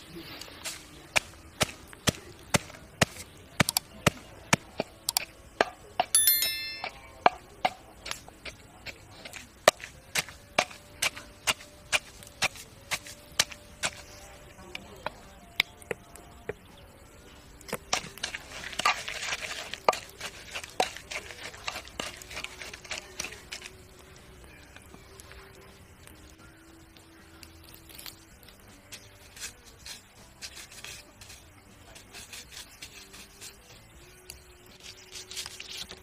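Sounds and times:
pestle pounding in a clay mortar: 0:09.6 - 0:14.0, 0:17.8 - 0:23.6.

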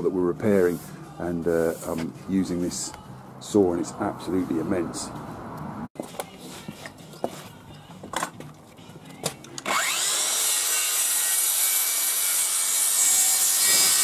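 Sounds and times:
circular saw cutting timber: 0:09.6 - 0:14.0.

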